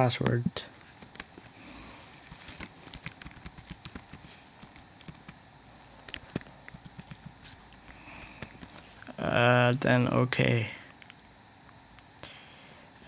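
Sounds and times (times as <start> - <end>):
keyboard keys clicking: 2.9 - 5.4, 6.0 - 7.3.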